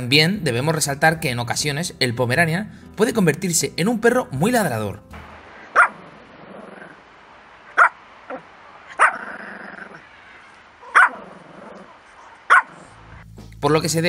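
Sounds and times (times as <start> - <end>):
small dog barking: 5.7 - 7.0, 7.7 - 13.0.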